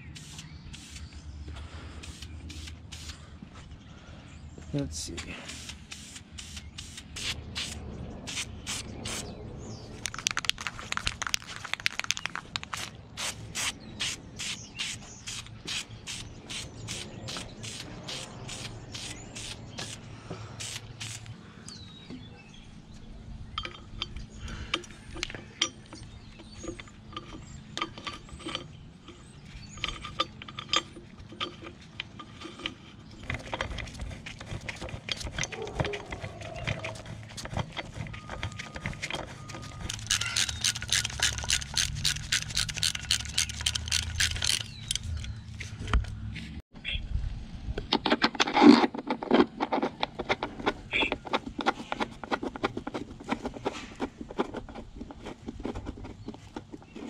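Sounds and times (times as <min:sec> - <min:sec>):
ratchet wrench clicking: 0:39.9 - 0:45.2.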